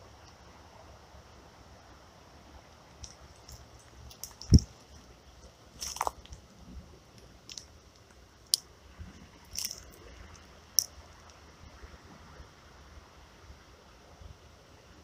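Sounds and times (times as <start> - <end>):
crunching rustles: 2.9 - 11.3.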